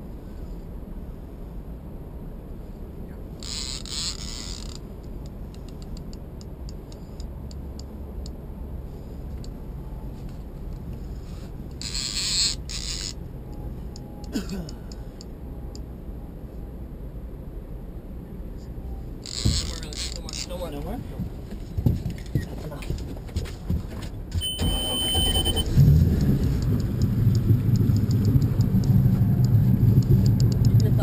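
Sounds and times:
steady low rumble: 0.0s - 31.0s
fishing reel drag buzzing: 3.4s - 4.8s, 11.8s - 13.2s
brief falling squeak: 24.4s - 25.7s
reel ticks: 26.2s - 31.0s.

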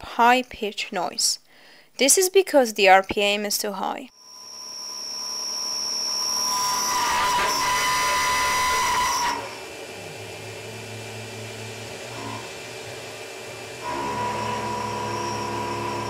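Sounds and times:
machine hum: 4.3s - 16.0s
mill cutting metal whine: 4.3s - 16.0s.

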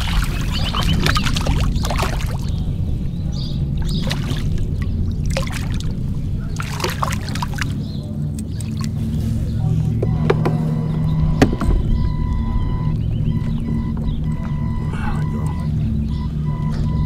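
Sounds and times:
fish splashing at water surface: 0.0s - 2.6s, 3.8s - 9.2s
steady low rumble: 0.0s - 17.0s
sharp clicks and knocks: 10.0s - 14.6s.

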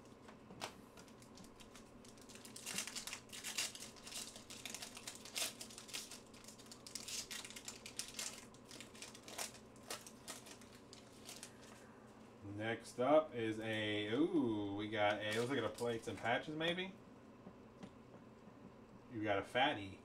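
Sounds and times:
foil wrapper crinkling: 0.0s - 11.9s, 15.2s - 16.2s.

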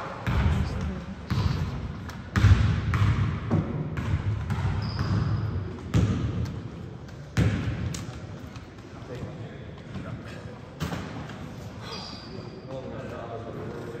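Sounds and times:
basketball bouncing on hardwood: 2.3s - 7.9s
shoe squeak: 4.8s - 5.6s, 11.7s - 13.1s.

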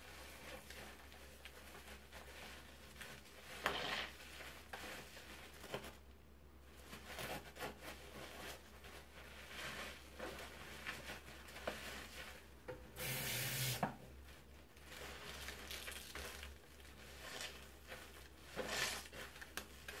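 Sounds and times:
soap foam crackling: 14.7s - 20.0s.

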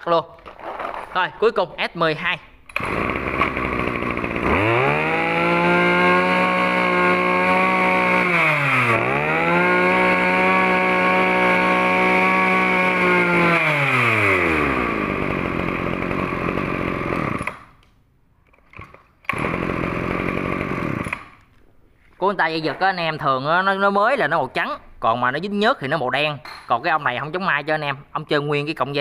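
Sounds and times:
brush cutter engine revving: 2.7s - 17.7s, 18.8s - 21.4s.

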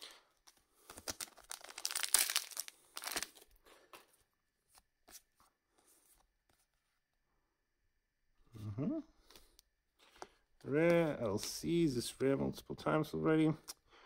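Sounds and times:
cards being handled: 0.4s - 6.7s
foil wrapper tearing and crinkling: 0.8s - 3.5s.

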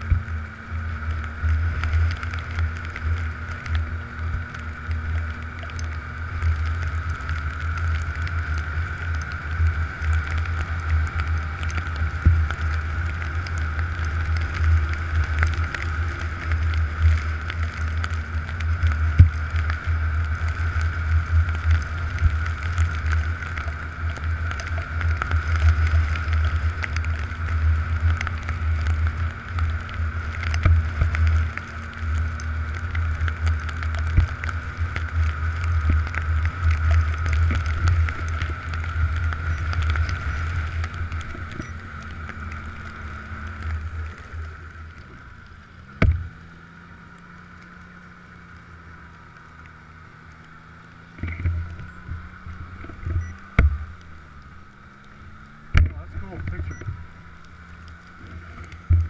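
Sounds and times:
snowmobile engine rumbling: 0.0s - 59.0s.

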